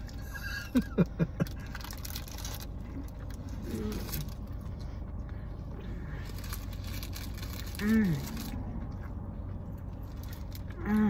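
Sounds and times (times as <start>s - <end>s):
car cabin hum: 0.0s - 11.0s.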